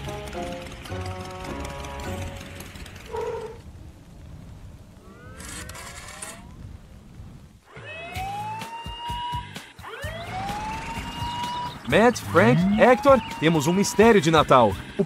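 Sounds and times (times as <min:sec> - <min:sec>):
light background music: 0:00.0 - 0:03.2, 0:07.8 - 0:15.0
cartoon siren: 0:07.7 - 0:11.7, 0:12.3 - 0:14.1.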